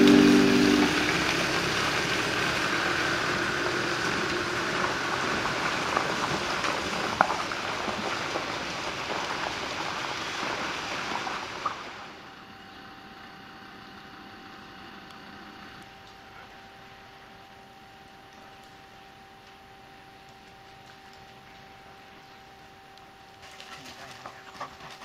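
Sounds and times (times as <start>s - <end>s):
faint clicks: 20.2s - 22.3s.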